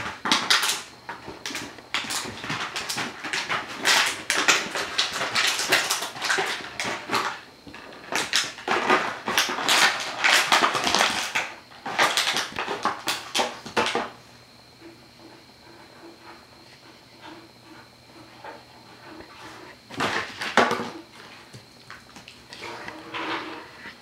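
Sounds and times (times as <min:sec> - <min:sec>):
plastic bottle crackling: 0:08.1 - 0:14.1.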